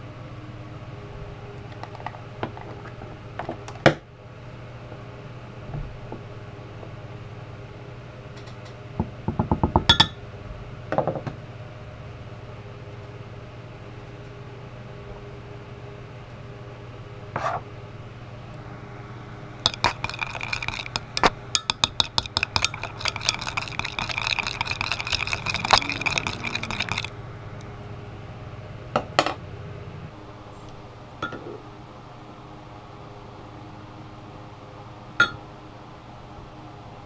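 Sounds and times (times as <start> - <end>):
steady low hum: 11.5 - 37.0
spoon clinking and scraping glass: 19.7 - 27.1.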